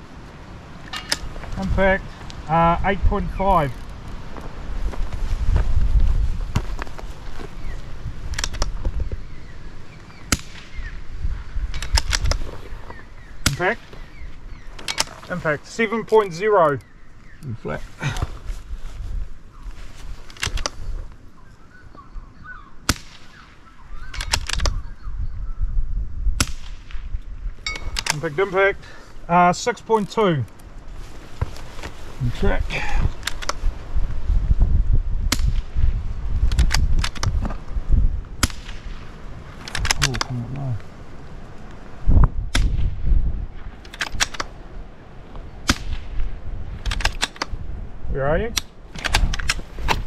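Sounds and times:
sharp cracks: 0.8s - 4.2s, 8.2s - 9.0s, 10.0s - 11.0s, 11.6s - 12.7s, 13.4s - 16.8s, 20.3s - 20.8s, 22.8s - 24.8s, 26.4s - 27.1s, 33.0s - 33.6s, 35.2s - 37.6s, 38.3s - 40.6s, 42.5s - 44.6s, 45.6s - 47.6s, 48.5s - 50.0s
rifle action clicks: 8.3s - 8.8s, 11.7s - 12.4s, 14.8s - 15.2s, 20.3s - 20.8s, 24.1s - 24.8s, 27.7s - 28.2s, 33.2s - 33.6s, 36.4s - 37.4s, 43.8s - 44.5s, 46.8s - 47.6s, 48.6s - 50.0s
rifle shot: 10.3s - 10.9s, 22.8s - 23.5s, 26.4s - 27.0s, 38.4s - 39.0s, 45.6s - 46.2s
faint bird chirps: 20.7s - 25.8s.

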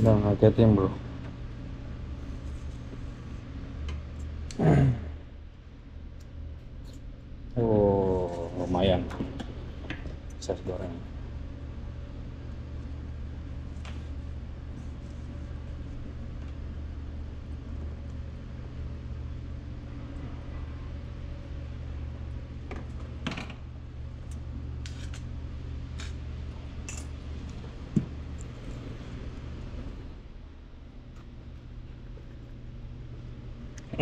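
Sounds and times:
low steady hum: 0.0s - 34.0s.

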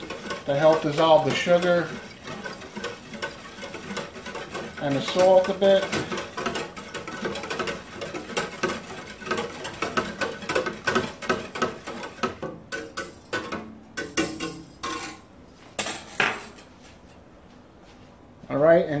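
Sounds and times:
whisk stirring liquid in container: 0.0s - 14.5s
whisk clacking on container: 0.0s - 15.1s.

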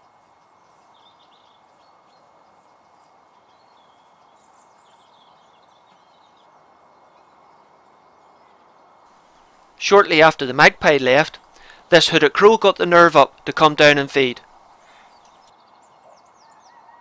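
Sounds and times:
small birds chirping: 0.1s - 17.0s
steady hiss: 9.1s - 15.5s.

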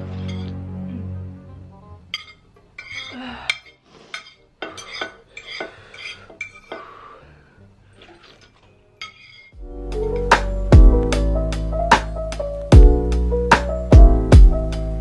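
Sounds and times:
metal utensil scraping a plate: 2.2s - 6.8s, 8.0s - 9.6s.

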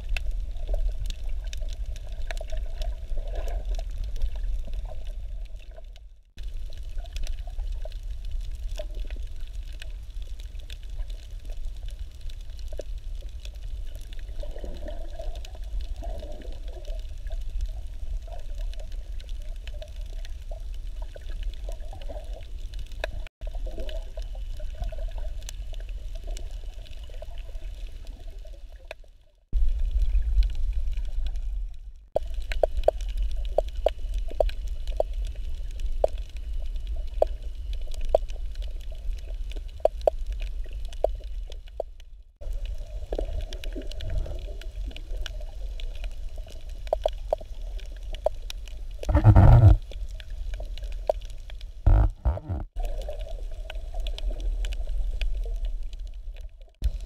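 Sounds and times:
underwater clicks and crackles: 0.0s - 57.0s
underwater low rumble: 0.0s - 57.0s.

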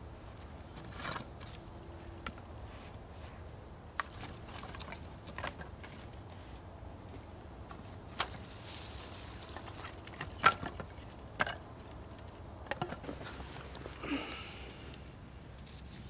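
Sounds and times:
wooden sticks clicking and knocking: 4.0s - 6.6s, 7.6s - 15.0s.

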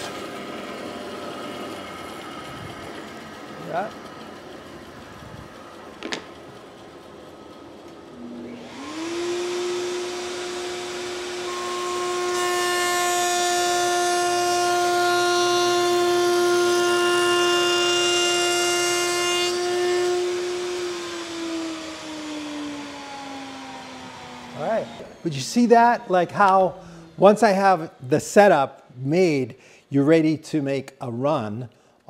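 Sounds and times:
router motor whine: 0.0s - 28.5s
router bit rasping wood: 8.2s - 28.6s.

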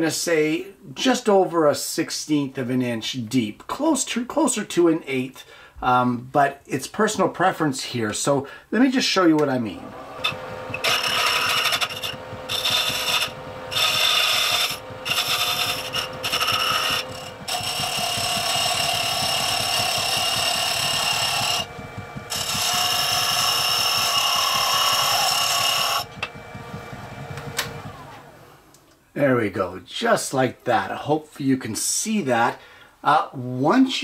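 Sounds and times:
lathe tool cutting wood: 9.7s - 28.7s
lathe humming: 9.8s - 28.9s.

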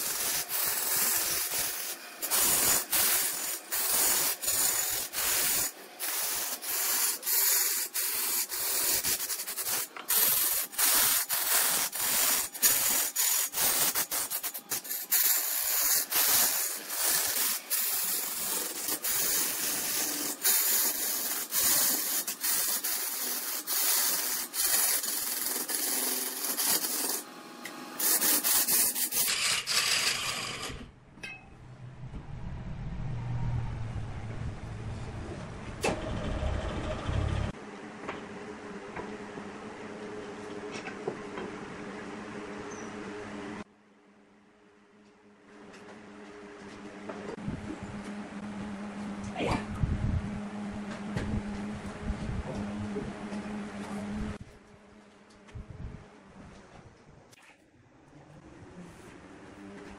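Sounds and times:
abrasive hiss on spinning wood: 0.0s - 27.3s, 28.0s - 30.6s
low lathe rumble: 31.6s - 37.6s.

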